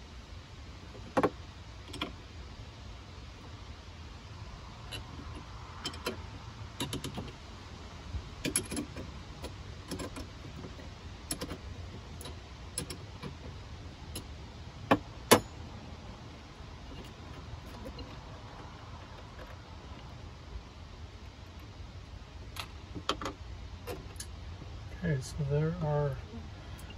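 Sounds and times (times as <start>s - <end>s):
metal clinks of wrench and terminals: 8.4s - 10.7s, 14.9s - 15.6s.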